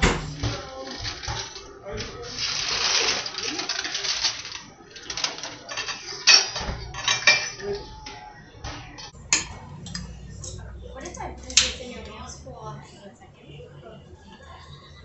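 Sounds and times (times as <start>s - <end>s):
dishware and utensils clinking: 0.0s - 12.3s
aluminium foil crinkling: 0.4s - 9.1s.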